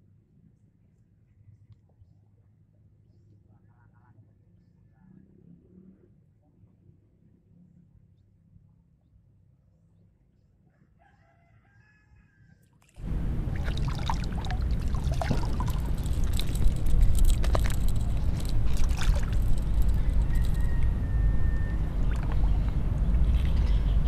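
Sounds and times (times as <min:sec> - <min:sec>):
rooster crowing faintly: 0:10.6 - 0:12.8, 0:19.9 - 0:22.2
water splashing and dripping: 0:13.0 - 0:20.8, 0:22.0 - 0:23.7
heavy low rumble: 0:13.0 - 0:24.0.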